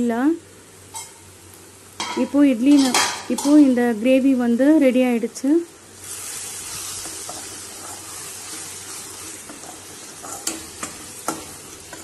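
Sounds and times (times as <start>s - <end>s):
gravy sizzling in a pot: 5.0s - 12.0s
ladle stirring: 6.8s - 12.0s.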